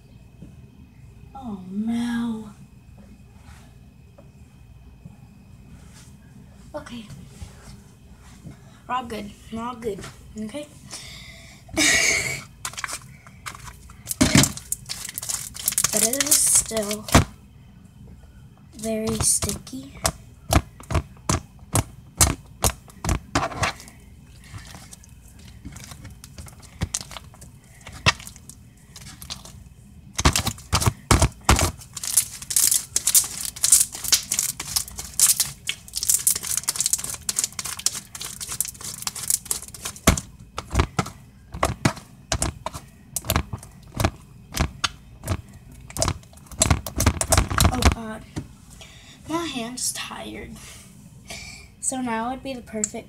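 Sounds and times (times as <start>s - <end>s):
slime crackling and popping: 12.6s - 17.3s, 20.5s - 29.6s, 30.2s - 48.0s.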